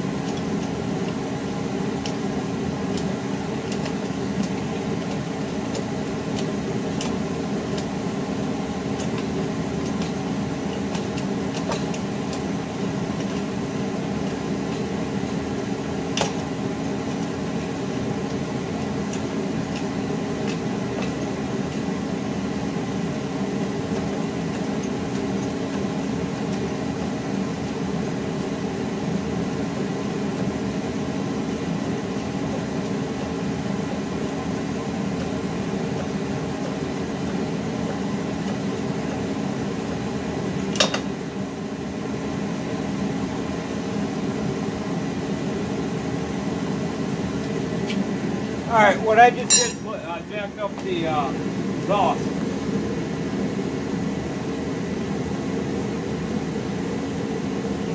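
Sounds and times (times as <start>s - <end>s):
mechanical hum: 0.0s - 57.9s.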